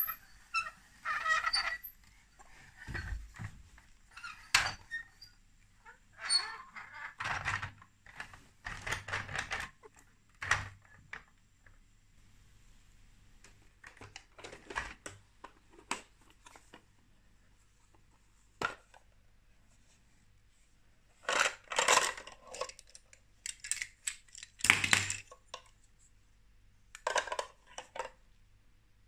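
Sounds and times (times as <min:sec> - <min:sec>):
plastic toy bricks clattering: 0:21.2 - 0:25.4
plastic clicks: 0:22.5 - 0:25.6.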